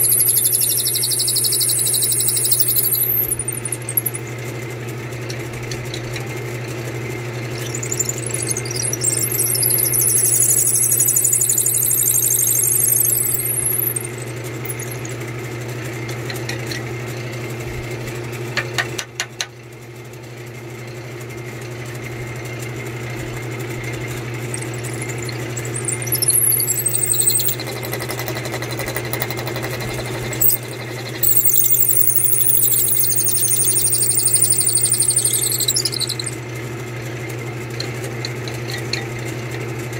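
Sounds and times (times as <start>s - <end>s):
drill bit squealing in wood: 0.0s - 4.2s, 7.6s - 15.1s, 24.5s - 36.4s
spindle clicks: 0.0s - 4.2s, 24.5s - 36.3s
lathe motor running: 24.5s - 36.3s.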